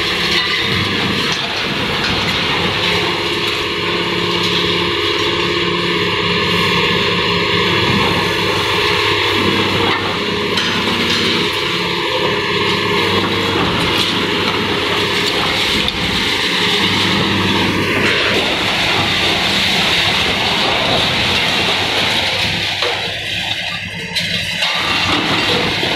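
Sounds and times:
excavator diesel engine: 0.0s - 25.9s
concrete breaking crunches: 13.4s - 25.9s.

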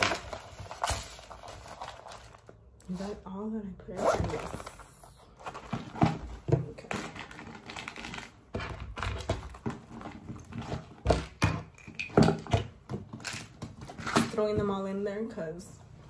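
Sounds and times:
packaging and bag lining rustling: 0.0s - 11.4s.

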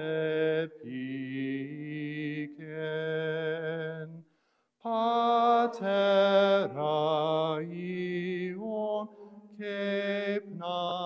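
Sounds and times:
man singing unaccompanied: 4.9s - 11.0s.

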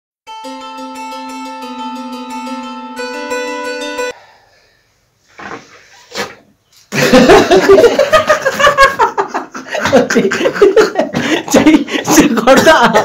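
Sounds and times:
man's loud voice: 11.5s - 13.0s.

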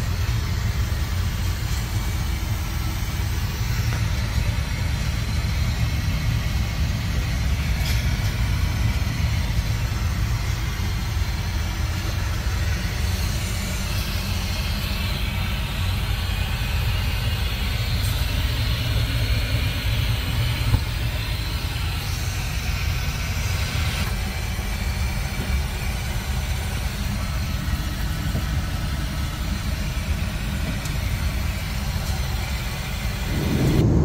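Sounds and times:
airliner cabin roar: 0.0s - 34.0s
low rumble: 32.2s - 34.0s.

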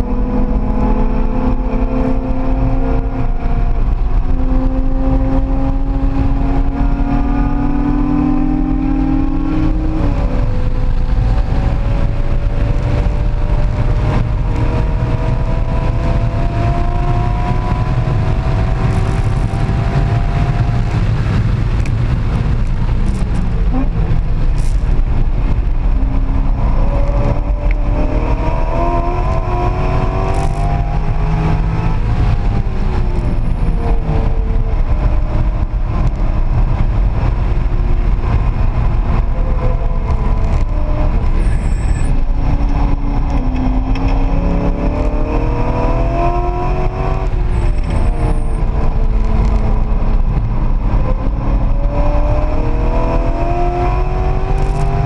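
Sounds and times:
car engine accelerating: 0.0s - 55.0s
road and wind noise: 0.0s - 55.0s.

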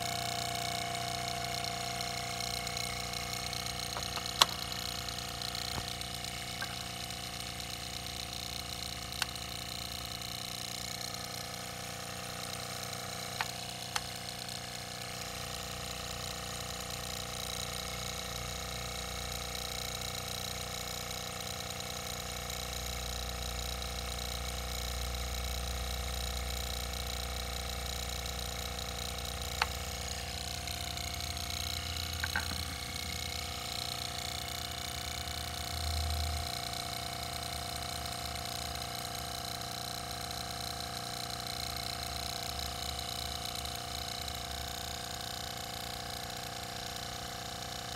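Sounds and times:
motor mechanical hum: 0.0s - 47.9s
sharp clicks: 2.9s - 6.9s, 29.5s - 33.8s.

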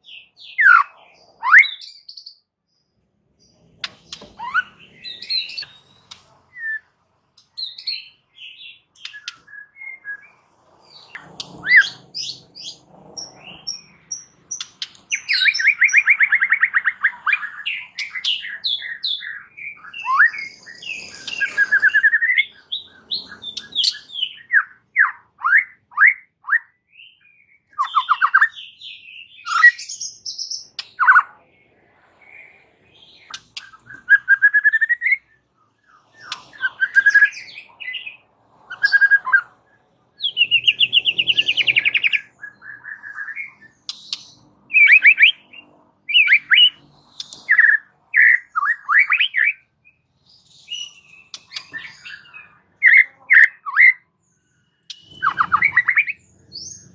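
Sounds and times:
bird singing whistled phrases: 0.0s - 2.4s, 4.1s - 6.9s, 13.6s - 31.4s, 33.2s - 39.5s, 40.2s - 54.0s, 54.8s - 56.9s.

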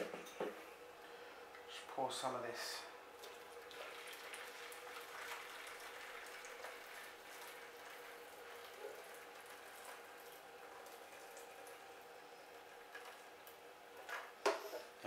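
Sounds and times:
water trickling into jug: 3.1s - 13.4s.

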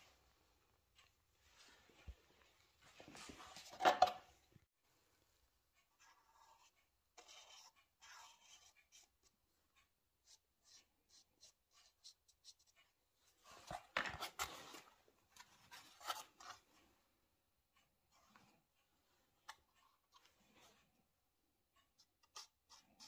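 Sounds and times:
marker pen scratching plastic: 6.0s - 9.3s, 22.0s - 23.0s.

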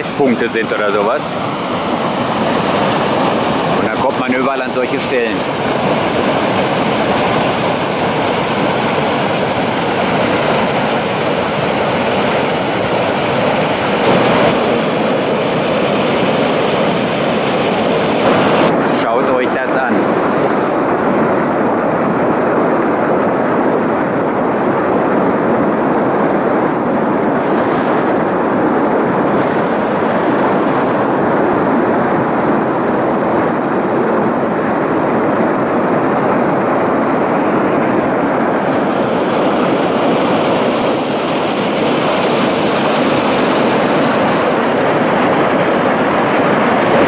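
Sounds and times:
water rushing down cascades: 0.0s - 20.9s, 36.8s - 47.0s.

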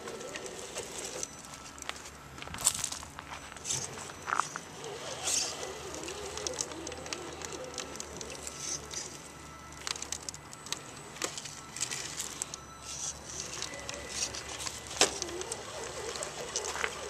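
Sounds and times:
tyres crunching over rocks and leaves: 0.1s - 17.0s
birds calling: 15.0s - 17.0s.

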